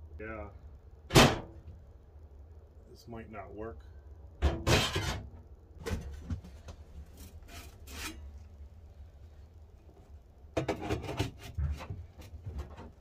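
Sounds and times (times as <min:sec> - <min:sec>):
metallic scrapes and rubs: 0:07.1 - 0:08.4.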